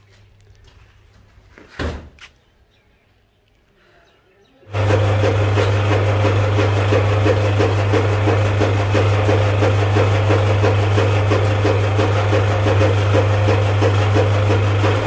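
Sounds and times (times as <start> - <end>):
chopping machine rhythmic hum: 4.7 - 15.0.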